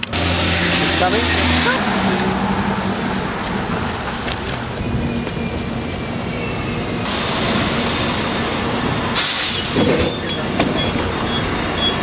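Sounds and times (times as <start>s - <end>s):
bus diesel engine running: 0.0s - 12.0s
air brake hiss: 9.2s - 10.0s.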